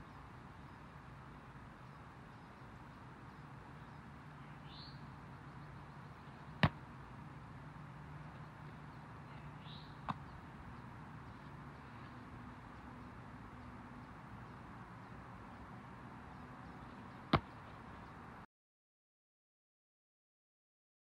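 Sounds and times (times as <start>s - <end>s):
bird chirp: 0.0s - 18.4s
football smacking into hands: 6.6s - 6.8s.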